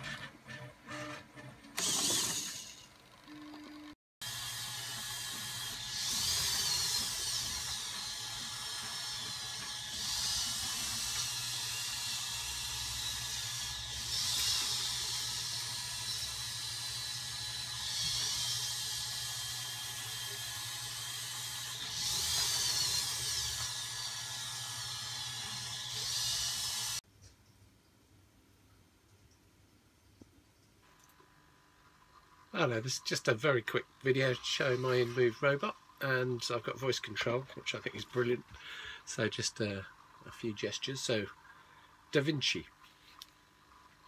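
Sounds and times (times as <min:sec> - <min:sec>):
servo motors whining: 0:00.0 - 0:03.6, 0:04.2 - 0:27.0.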